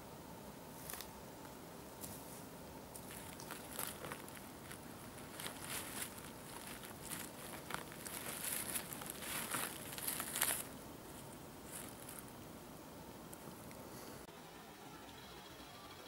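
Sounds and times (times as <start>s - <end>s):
dry leaves crackling and rustling: 3.0s - 12.4s.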